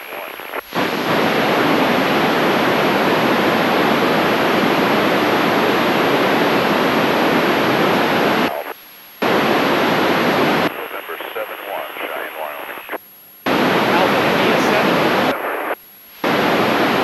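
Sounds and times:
radio receiver hiss: 0:00.0 - 0:17.0.

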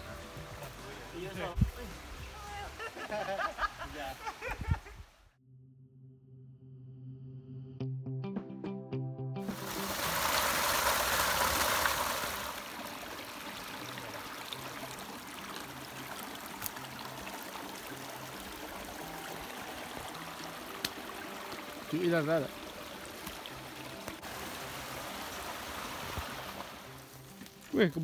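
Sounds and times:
background music: 0:00.0 - 0:03.6, 0:07.0 - 0:28.0
rushing outdoor noise: 0:09.4 - 0:27.3.

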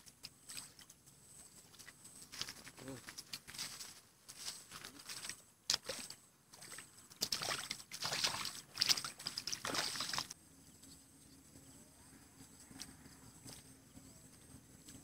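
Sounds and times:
water splashing at the bank: 0:00.0 - 0:01.0, 0:01.6 - 0:10.4.

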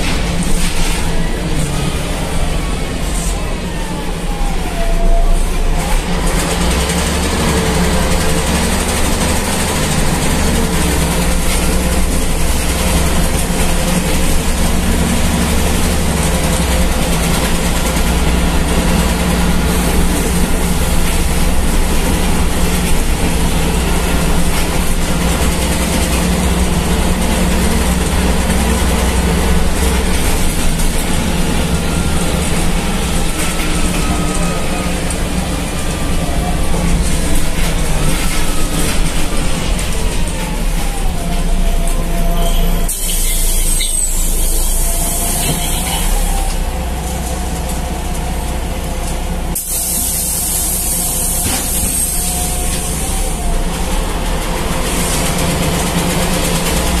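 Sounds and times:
bus engine drone: 0:00.0 - 0:57.0.

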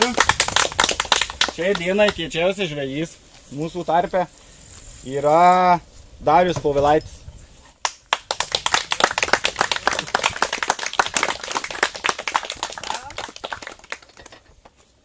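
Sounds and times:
crowd applauding: 0:00.0 - 0:02.2, 0:08.1 - 0:14.4.

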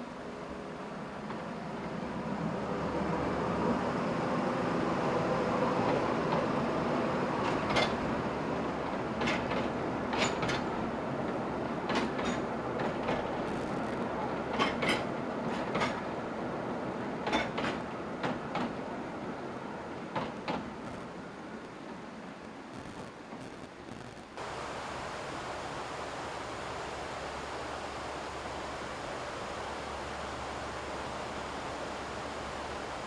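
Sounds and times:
train running on wooden trestle: 0:05.1 - 0:19.1, 0:19.9 - 0:21.2
wheels clicking over rail joints: 0:08.7 - 0:13.5, 0:14.4 - 0:16.2, 0:17.2 - 0:18.9.

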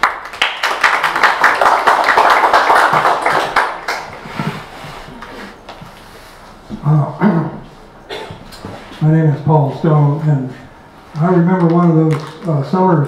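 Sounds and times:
audience applauding: 0:00.0 - 0:04.3.

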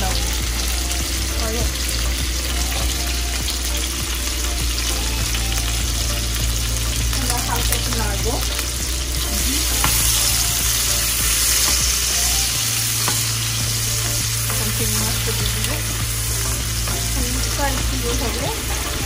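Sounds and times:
food sizzling in oil: 0:00.0 - 0:19.0
utensil knocking on pan: 0:13.0 - 0:13.4.

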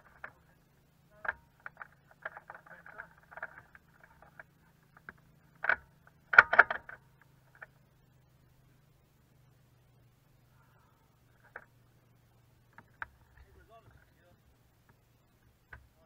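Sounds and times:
small clicks and rustles: 0:00.0 - 0:07.9, 0:10.6 - 0:11.8, 0:12.6 - 0:16.0
faint low hum: 0:00.0 - 0:16.0.

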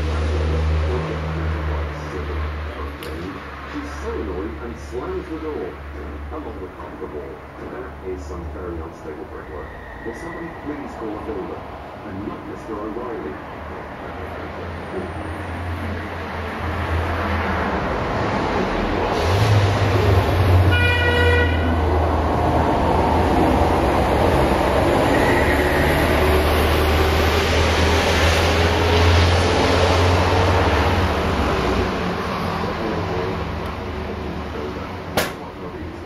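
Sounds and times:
loud rushing vehicle noise: 0:00.0 - 0:36.0
short horn toot: 0:20.7 - 0:21.7.

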